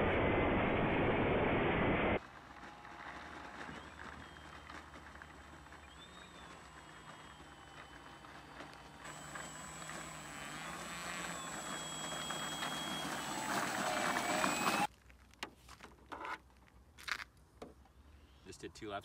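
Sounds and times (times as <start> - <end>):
model plane propeller whine: 2.2 - 14.9.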